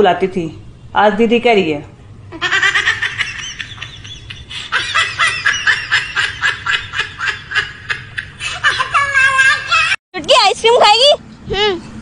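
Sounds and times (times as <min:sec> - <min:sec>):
high-pitched laughter: 0:02.4 - 0:10.0.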